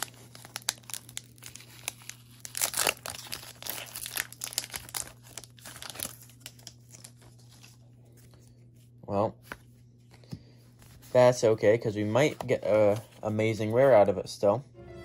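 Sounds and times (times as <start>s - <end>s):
foil wrapper crinkling and tearing: 0.0s - 8.4s.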